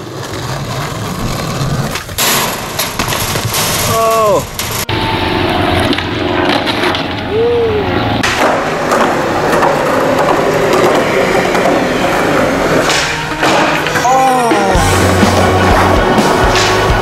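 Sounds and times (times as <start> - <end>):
skateboard wheels rolling on concrete: 0.0 - 17.0
skateboard clacks: 8.2 - 14.0.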